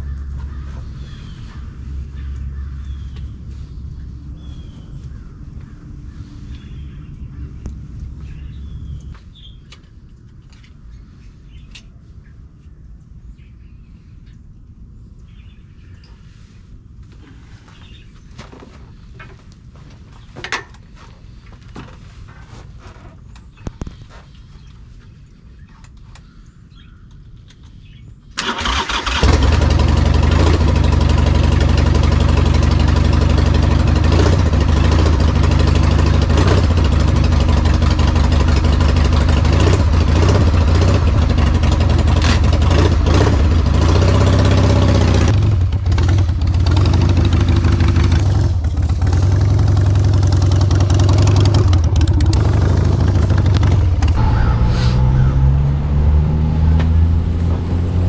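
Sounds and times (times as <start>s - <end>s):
motorcycle engine starting and running: 28.4s - 58.0s.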